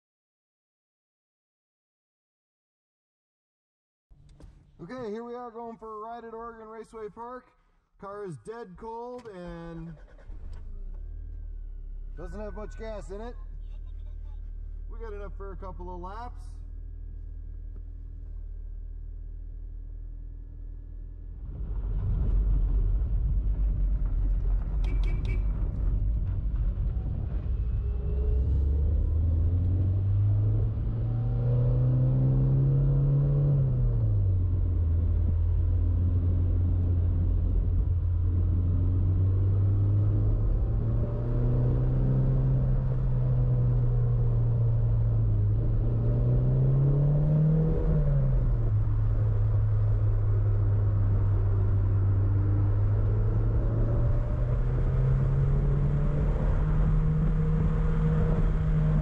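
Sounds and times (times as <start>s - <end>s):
car engine from inside cabin: 9.1s - 21.3s, 27.8s - 59.0s.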